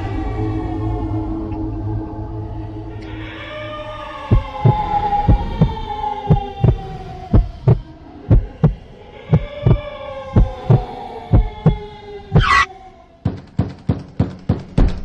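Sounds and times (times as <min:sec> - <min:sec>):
eerie falling drone: 0:00.0 - 0:12.9
heartbeat thumping: 0:04.3 - 0:09.8, 0:10.4 - 0:11.8, 0:12.4 - 0:12.7.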